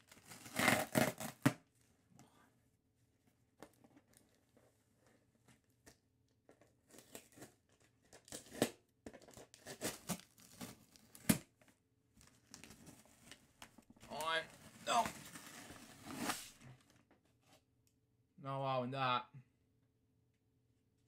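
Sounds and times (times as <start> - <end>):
packaging tearing and crinkling: 0.0 - 1.6, 6.9 - 11.5.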